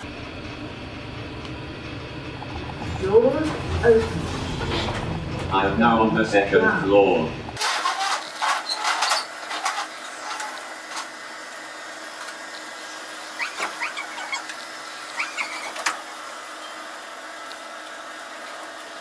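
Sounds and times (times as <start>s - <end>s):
electric motors whirring: 7.5s - 19.0s
short squeaks: 7.8s - 10.6s, 13.4s - 16.0s.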